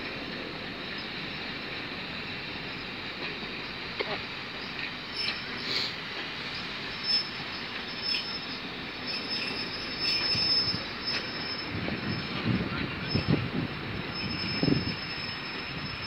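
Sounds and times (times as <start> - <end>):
train wheels clicking over rail joints: 0.0 - 16.0
high wheel squeal: 4.3 - 16.0.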